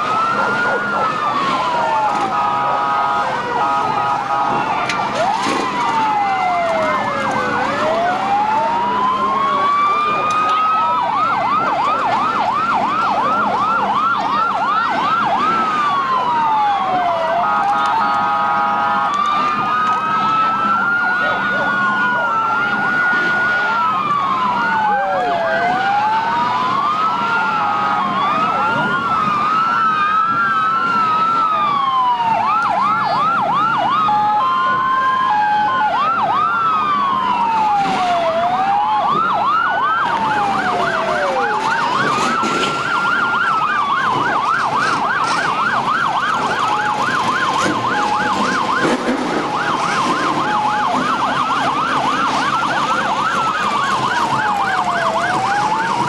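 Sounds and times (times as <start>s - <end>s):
fast siren yelp: 0.0s - 56.0s
sirens wailing: 0.0s - 56.0s.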